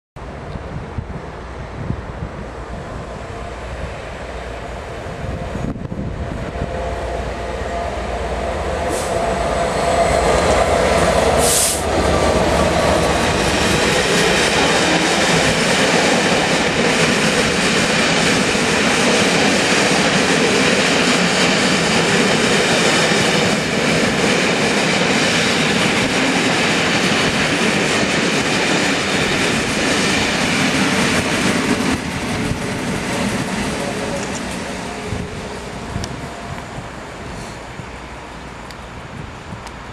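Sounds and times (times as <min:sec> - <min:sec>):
diesel locomotive engine: 0:00.2 - 0:39.9
train rolling rumble: 0:00.2 - 0:39.9.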